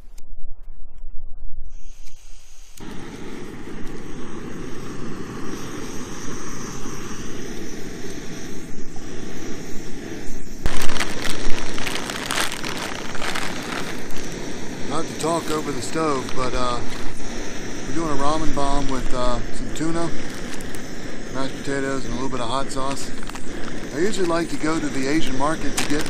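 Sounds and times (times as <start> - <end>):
stove burner rushing: 2.8 - 26.0
rustling: 10.7 - 14.4.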